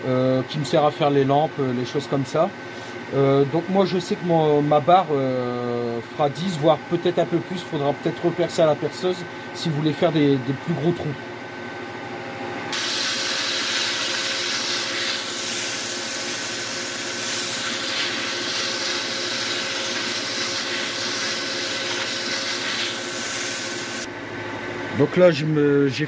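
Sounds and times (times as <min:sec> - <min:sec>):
friction hiss on spinning wood: 0:12.8 - 0:24.1.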